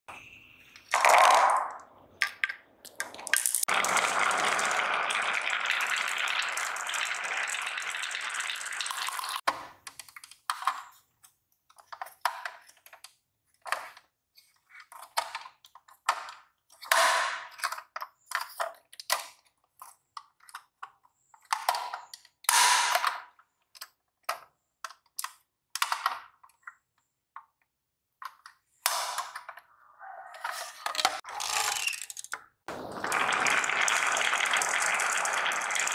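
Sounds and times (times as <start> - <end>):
marbles clattering on a tabletop: 0.9 - 4.0, 30.9 - 32.4
plastic toy clicks and knocks: 9.4 - 14.1, 14.8 - 27.6, 30.8 - 32.4.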